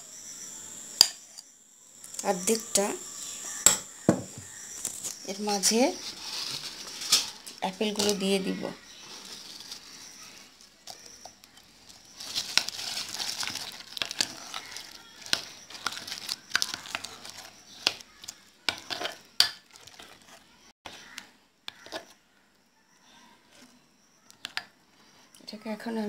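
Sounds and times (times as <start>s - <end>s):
squelchy batter churning: 5.4s - 22.3s.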